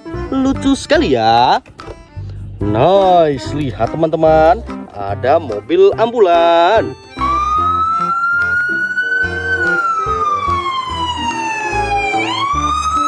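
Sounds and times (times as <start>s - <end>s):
background music with bass line: 0.0s - 13.0s
ambulance siren wailing: 6.8s - 13.0s.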